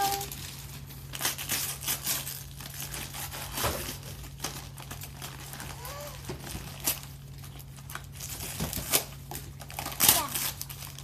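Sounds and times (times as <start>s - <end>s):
wrapping paper tearing: 0.0s - 11.0s.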